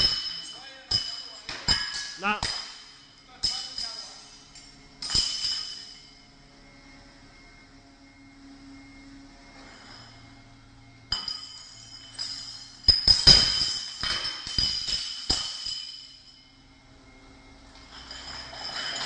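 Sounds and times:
glass bottles breaking: 0.0s - 6.1s, 11.1s - 16.5s, 17.8s - 19.0s
glass bottles clinking: 0.0s - 6.2s, 11.1s - 16.5s, 17.7s - 19.0s.

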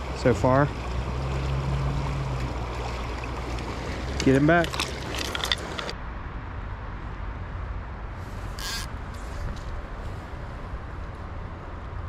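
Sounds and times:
creek water running: 0.0s - 6.0s.

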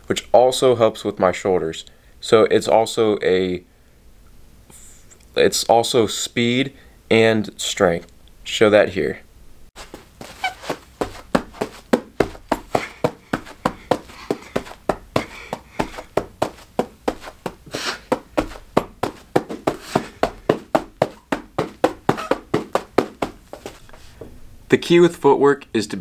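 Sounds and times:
hands slapping carpeted floor: 9.8s - 23.9s.

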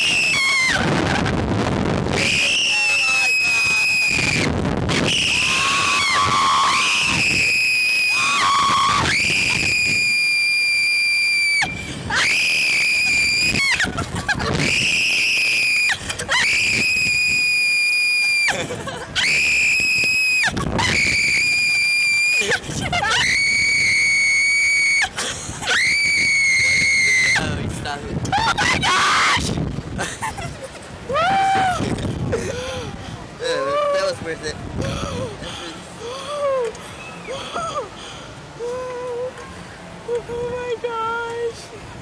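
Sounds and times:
riders screaming: 0.0s - 1.3s, 2.1s - 18.6s.

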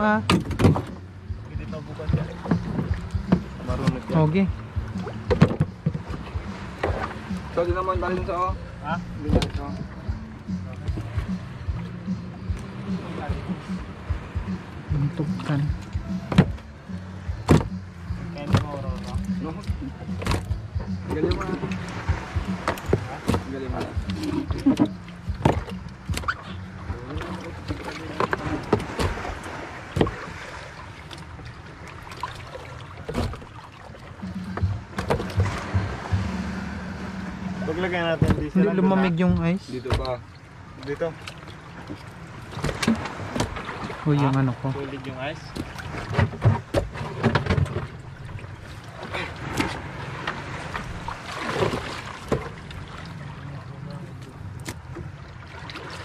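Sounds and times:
boat engine running: 0.0s - 56.0s
low rumble: 33.4s - 39.6s.

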